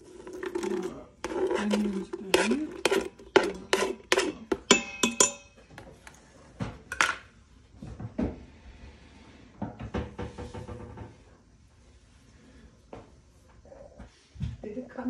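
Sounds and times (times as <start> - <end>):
utensils clanking on metal pot: 0.0 - 5.6.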